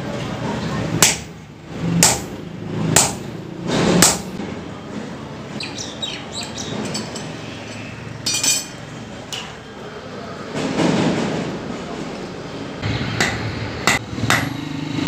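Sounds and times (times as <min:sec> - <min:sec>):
hammer striking iron on anvil: 0:01.0 - 0:01.3, 0:02.0 - 0:02.4, 0:03.0 - 0:03.3, 0:04.0 - 0:04.4, 0:13.2 - 0:14.6.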